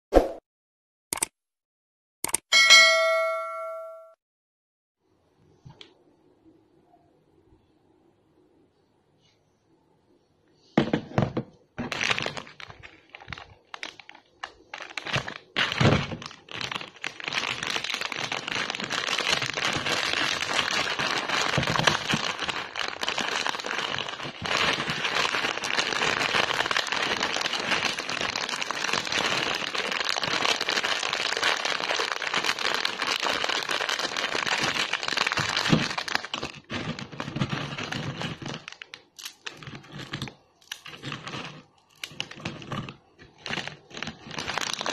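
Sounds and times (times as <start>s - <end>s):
crunchy snacks poured into bowl: 11.8s - 44.9s
plastic packet crinkling: 11.8s - 44.9s.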